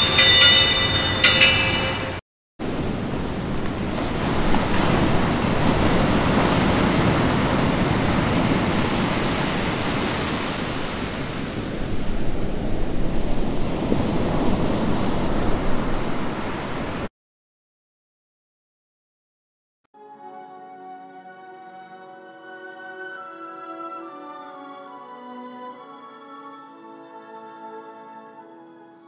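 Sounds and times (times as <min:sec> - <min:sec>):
ocean waves and surf: 0:02.6 - 0:17.1.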